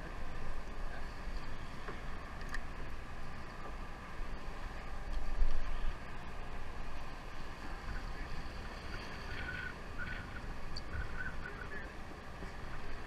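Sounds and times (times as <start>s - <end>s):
boat engine rumble: 0.0s - 13.0s
water along hull: 0.0s - 13.0s
wind on microphone: 4.2s - 13.0s.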